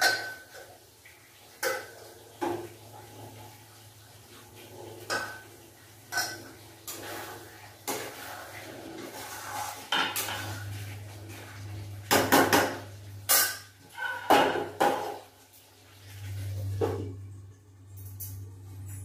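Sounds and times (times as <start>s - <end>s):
kitchen utensils clinking: 0.0s - 0.8s, 1.6s - 3.4s, 4.8s - 15.3s, 17.9s - 19.0s
metal spatula scraping a pan: 6.0s - 12.2s
low steady hum: 15.9s - 19.0s.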